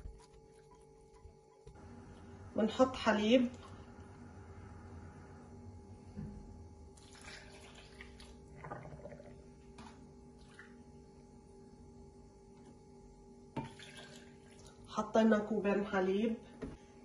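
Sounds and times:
low hum: 0:00.0 - 0:07.3
milk pouring and splashing: 0:07.0 - 0:10.8, 0:13.6 - 0:14.9.

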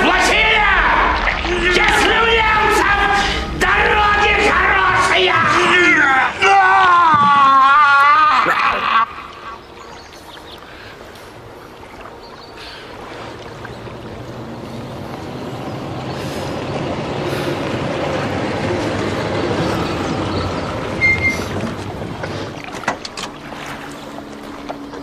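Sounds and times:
steady rushing noise: 0:00.0 - 0:07.4.

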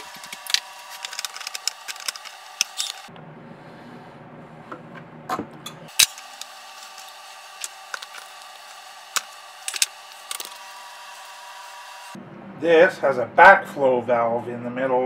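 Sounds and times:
steady hum: 0:00.0 - 0:14.2.

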